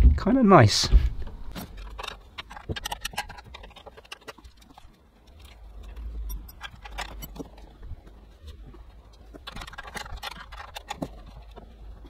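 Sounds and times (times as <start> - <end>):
hand tool clicking on bolts: 5.4 - 7.6.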